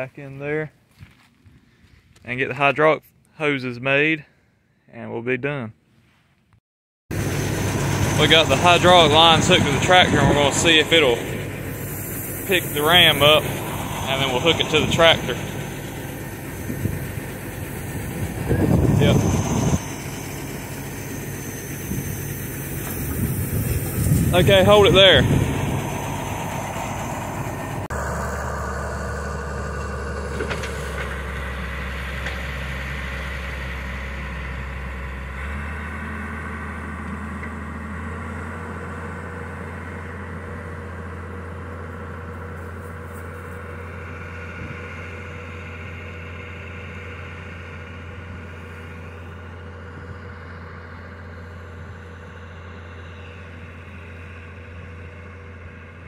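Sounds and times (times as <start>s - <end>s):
tractor engine idling: 7.1s - 56.0s.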